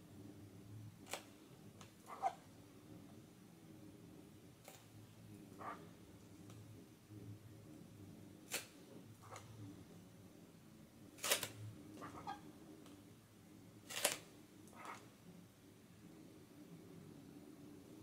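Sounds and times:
low steady hum: 0.0s - 18.0s
sharp clicks and scratches: 13.9s - 15.0s.

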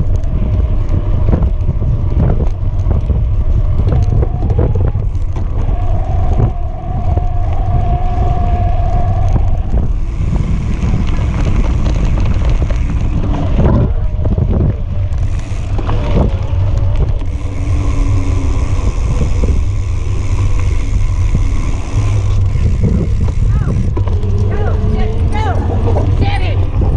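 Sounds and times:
bike tyre rumbling on dirt: 0.0s - 26.9s
steady whine: 0.0s - 26.9s
wind buffeting microphone: 0.0s - 26.9s.

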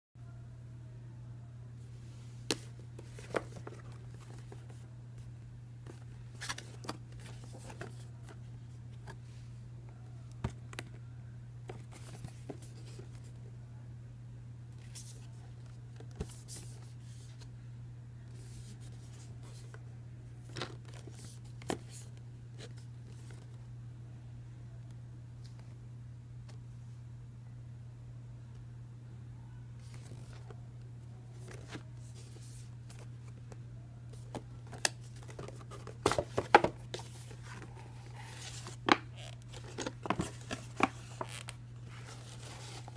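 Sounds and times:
steady low hum: 0.2s - 42.9s
cardboard box being handled: 35.1s - 42.9s.

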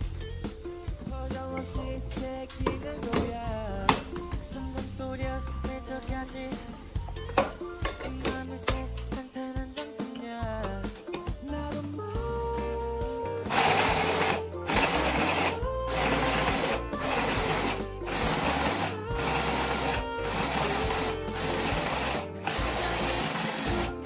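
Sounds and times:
electric food chopper pulsing: 13.5s - 24.0s.

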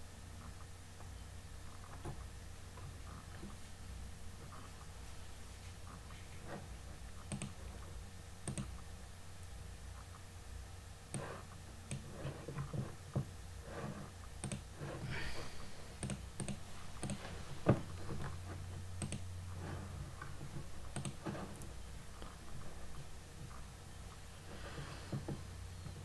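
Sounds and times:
steady low hum: 0.0s - 26.0s
mouse and keyboard clicking: 7.2s - 7.6s, 8.4s - 8.8s, 14.4s - 14.7s, 16.0s - 17.2s, 19.0s - 19.3s, 20.9s - 22.4s.

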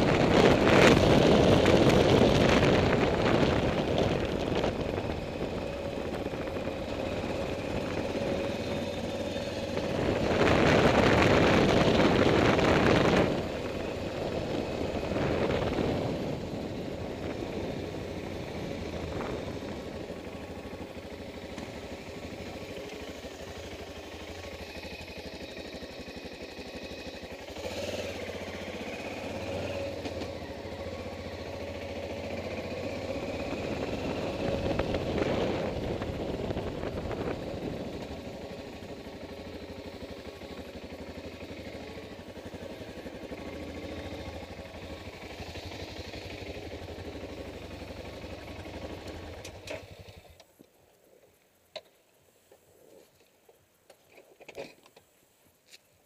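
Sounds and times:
wind rushing over microphone: 0.0s - 8.4s, 9.7s - 20.2s, 33.2s - 38.2s
motorcycle engine: 0.0s - 51.9s.

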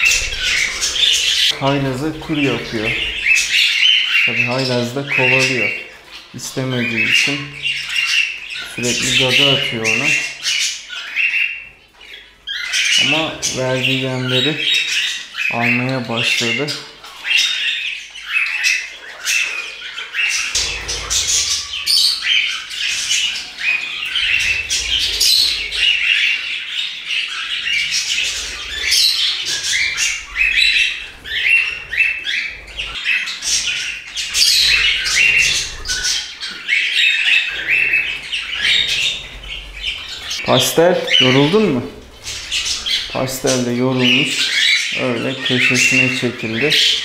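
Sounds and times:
budgerigars chirping and squawking: 0.0s - 47.0s.

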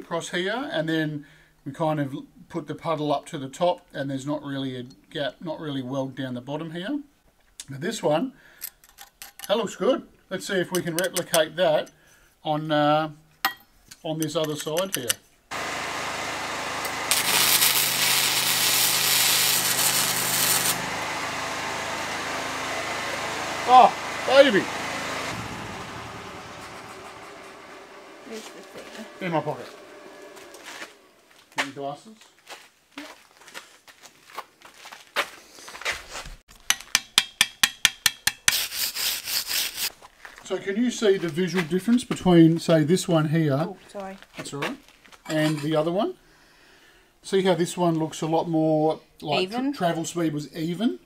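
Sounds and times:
welding arc crackling: 15.5s - 31.1s
machine hum: 15.5s - 31.4s
chipping hammer tapping steel: 36.6s - 38.6s.

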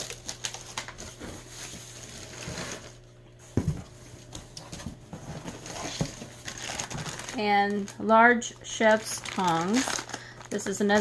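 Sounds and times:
rustling in a box: 4.7s - 7.9s.

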